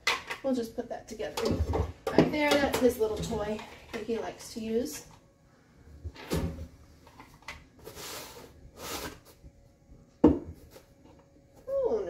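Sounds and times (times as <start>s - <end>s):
things scraping along a shelf: 7.0s - 9.4s
knock on wooden shelf: 10.2s - 10.5s.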